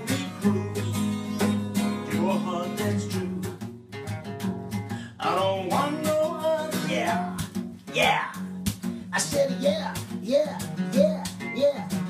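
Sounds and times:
person singing: 0.0 - 3.6, 5.0 - 8.5, 9.1 - 12.0
guitar strumming: 0.0 - 12.0.

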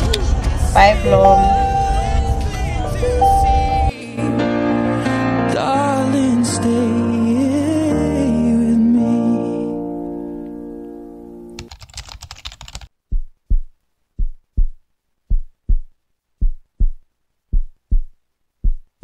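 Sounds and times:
background music held chord: 0.6 - 11.6
low heartbeat-like thumps: 13.1 - 18.9.

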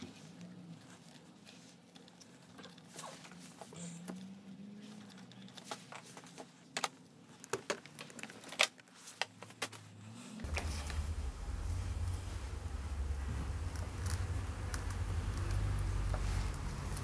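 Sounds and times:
plastic connectors clicking and rattling: 5.0 - 9.8.

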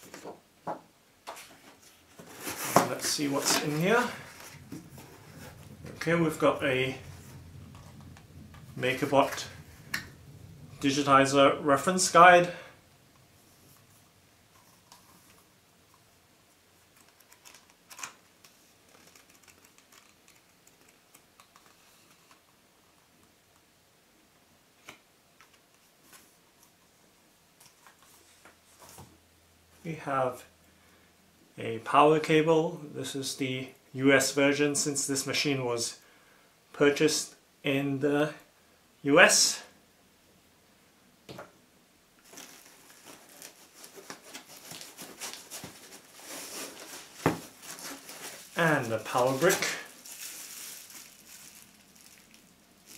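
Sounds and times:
paper pages rustling: 1.3 - 11.2, 16.9 - 22.4, 42.2 - 52.9.

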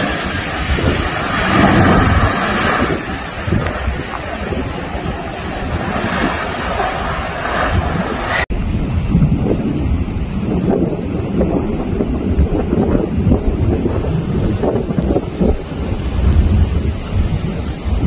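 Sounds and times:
jet airliner passing close: 0.0 - 12.2
wind buffeting microphone: 0.0 - 18.0.

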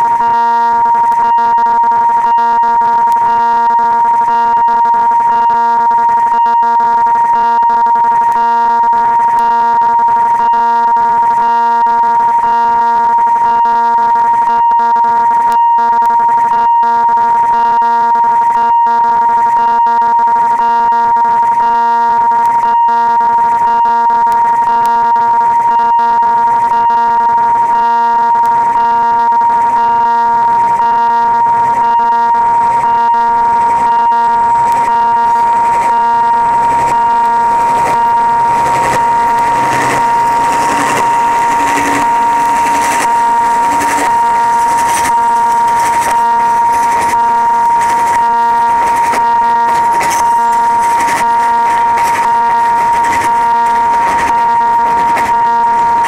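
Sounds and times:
level crossing alarm ringing: 0.0 - 56.0
low hum: 25.3 - 56.0
freight train passing: 35.6 - 48.1.

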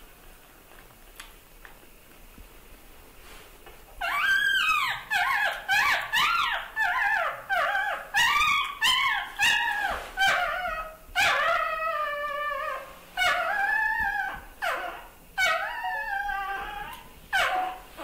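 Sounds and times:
puppies whining: 4.0 - 18.0.

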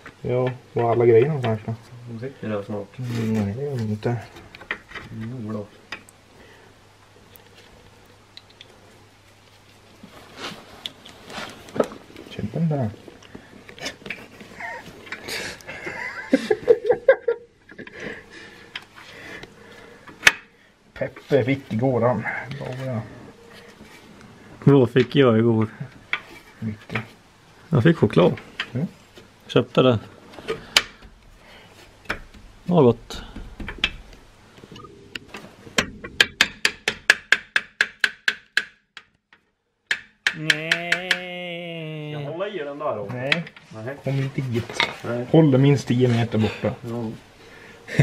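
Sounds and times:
man laughing: 14.4 - 18.2.

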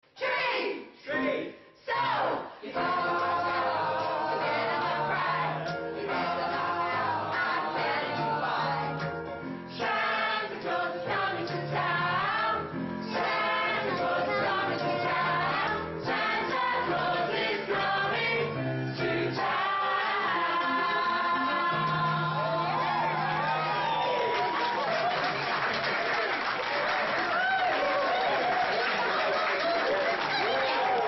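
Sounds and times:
choir singing: 2.0 - 24.0.

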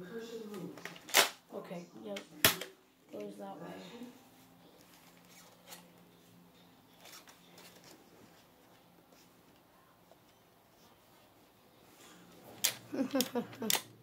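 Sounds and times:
faint low hum: 0.0 - 14.0
handling rustles and clicks: 6.9 - 10.9.

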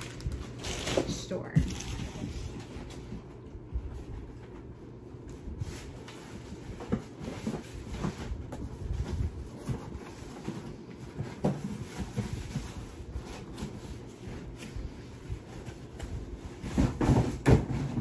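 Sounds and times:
cardboard boxes knocking and rustling: 6.0 - 18.0
loud thumps of boxes: 16.7 - 18.0.

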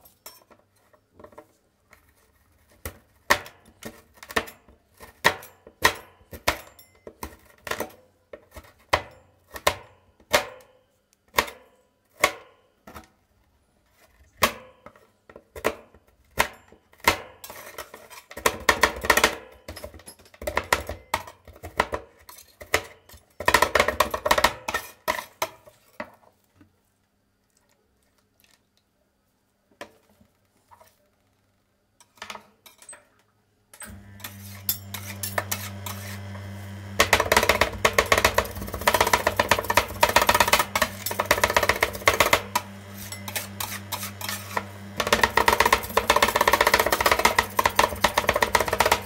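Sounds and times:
metal spatulas chopping on steel: 33.8 - 36.3, 37.0 - 49.0.

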